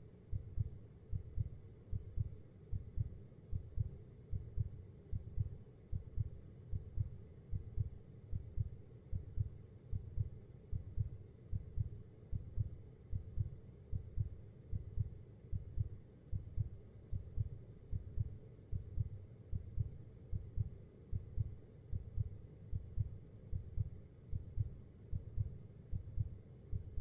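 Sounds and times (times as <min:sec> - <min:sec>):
heartbeat thumps: 0:00.3 - 0:27.0.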